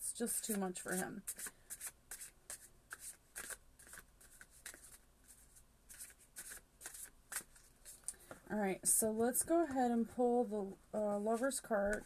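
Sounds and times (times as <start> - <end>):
cards swishing while shuffled: 0.3 - 8.1.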